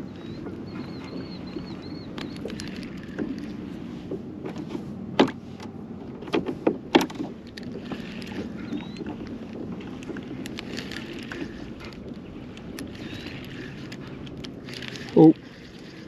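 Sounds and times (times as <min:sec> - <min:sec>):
water: 0:00.0 - 0:16.0
wind: 0:00.0 - 0:16.0
sharp knocks on boat: 0:04.1 - 0:05.4, 0:06.2 - 0:07.4.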